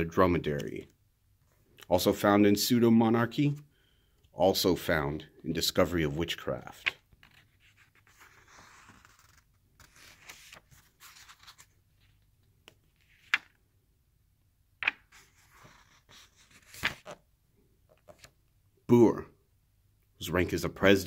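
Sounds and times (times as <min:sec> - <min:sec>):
book pages rustling: 0:06.1 - 0:13.6, 0:14.8 - 0:17.2, 0:17.8 - 0:18.4
sharp paper flicks: 0:16.6 - 0:17.2.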